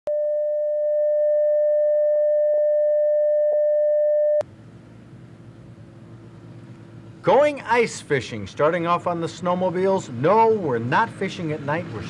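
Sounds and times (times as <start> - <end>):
steady sine test tone: 0.1 - 4.5.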